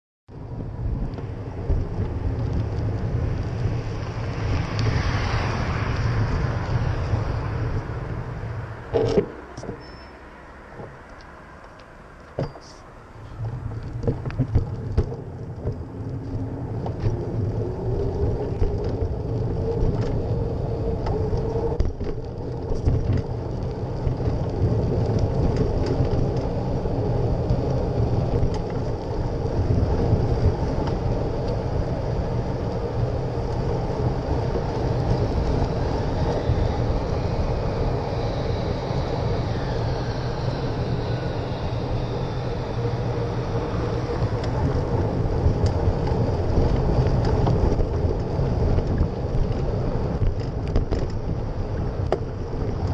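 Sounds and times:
tyres rolling over pavement: 0:00.3 - 0:52.9
wind and road rumble: 0:00.3 - 0:52.9
bike knocks and rattles: 0:12.3 - 0:12.8, 0:13.4 - 0:15.9.

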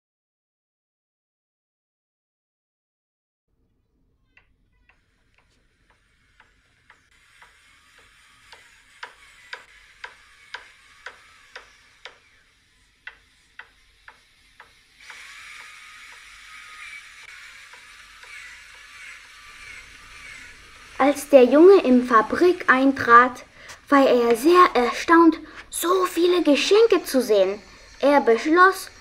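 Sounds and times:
steady hissing: 0:04.2 - 0:29.0
sharp mechanical clicks: 0:04.9 - 0:12.3, 0:13.0 - 0:21.2.

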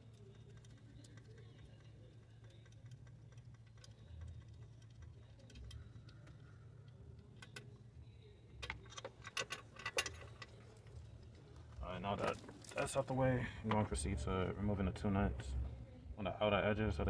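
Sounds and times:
faint low hum: 0:00.0 - 0:17.0
metal parts clicking: 0:08.6 - 0:11.0.

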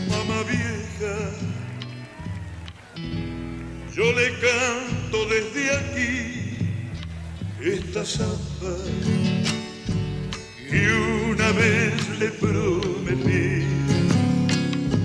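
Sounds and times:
man singing with vibrato: 0:00.0 - 0:01.8, 0:03.8 - 0:09.5, 0:10.4 - 0:14.5
acoustic guitars playing: 0:00.0 - 0:15.0.

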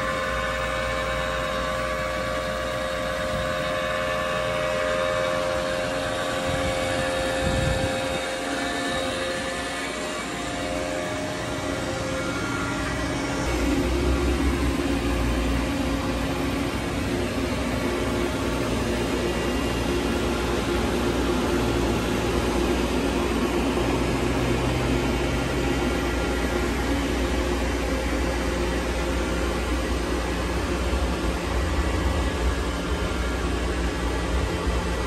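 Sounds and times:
electrical hum: 0:00.0 - 0:35.0
fan whir: 0:00.0 - 0:35.0.

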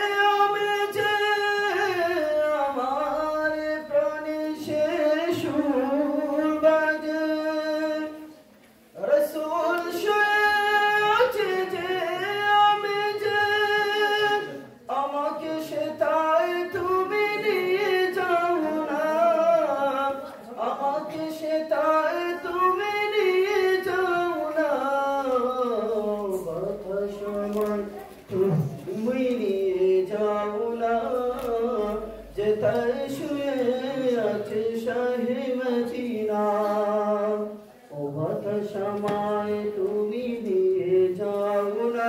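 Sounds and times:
child chanting: 0:09.2 - 0:41.9.

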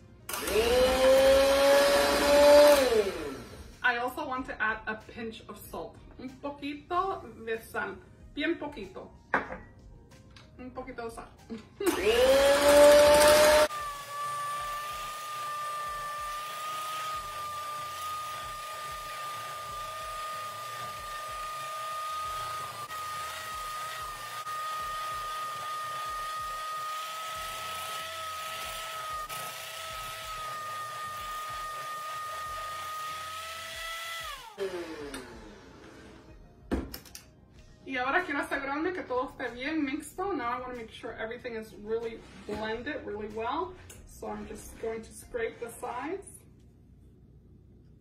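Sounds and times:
electric hand mixer whining: 0:00.0 - 0:03.8, 0:11.8 - 0:36.4.

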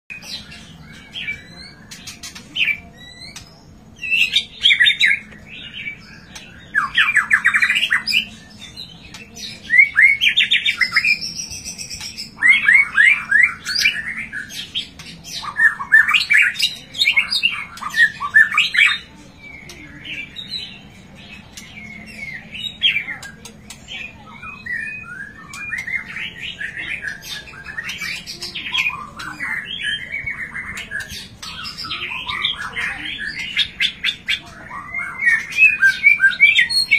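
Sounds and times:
songbird singing: 0:00.1 - 0:36.9.

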